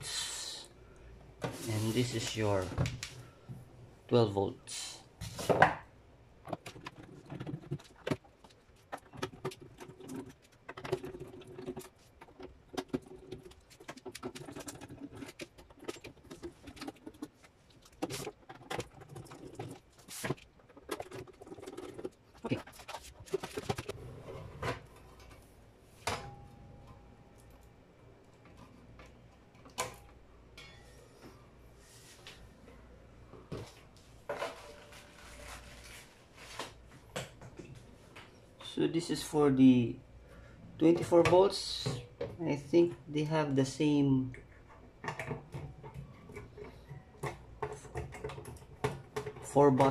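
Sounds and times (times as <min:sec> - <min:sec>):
metal sliding and rubbing: 0:01.4 - 0:02.4.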